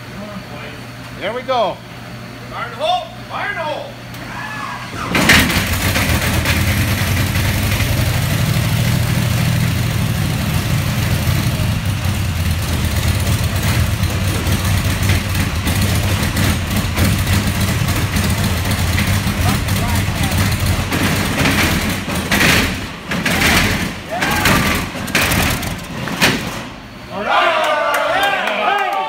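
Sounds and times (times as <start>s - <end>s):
radial aircraft engine starting: 4.1s - 27.0s.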